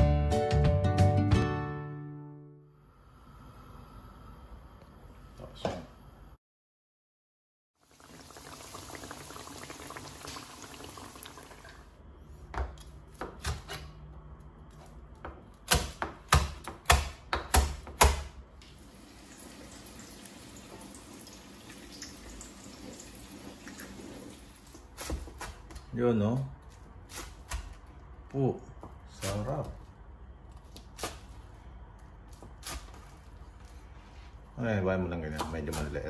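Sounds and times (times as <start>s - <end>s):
knife chopping on plastic board: 15.2s - 18.4s.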